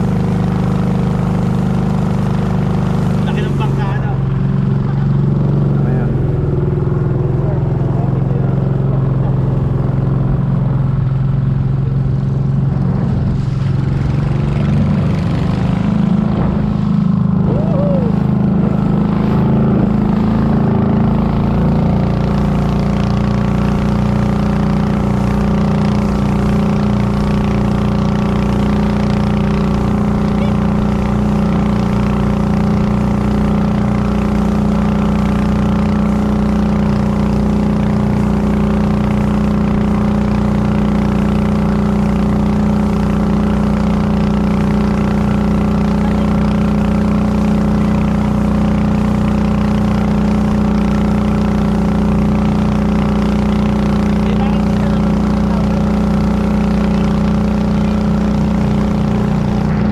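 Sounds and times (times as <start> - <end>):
motorboat engine droning: 0.0 - 59.9.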